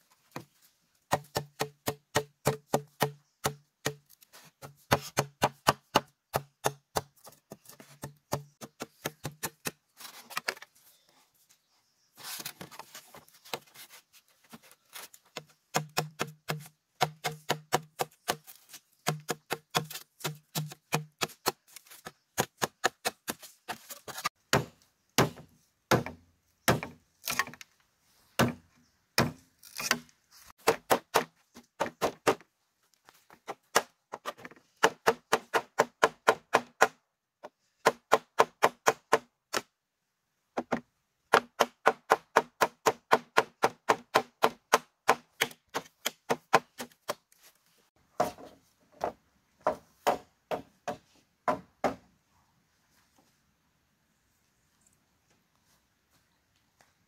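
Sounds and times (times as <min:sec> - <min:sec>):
hand tool striking bamboo: 0:01.1 - 0:09.8, 0:15.3 - 0:27.6, 0:33.5 - 0:37.0, 0:40.6 - 0:47.3.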